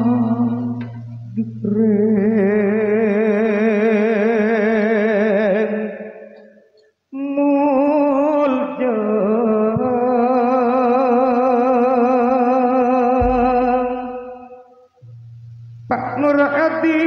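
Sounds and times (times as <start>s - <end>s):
solo voice singing with vibrato: 0.0s - 6.1s.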